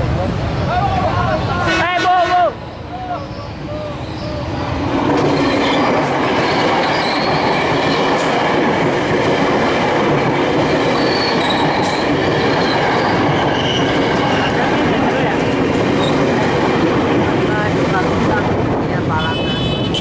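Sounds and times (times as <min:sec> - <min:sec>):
electric train passing: 0:00.0 - 0:19.8
high wheel squeal: 0:02.6 - 0:04.8, 0:06.4 - 0:07.6, 0:11.0 - 0:12.0, 0:12.6 - 0:14.5.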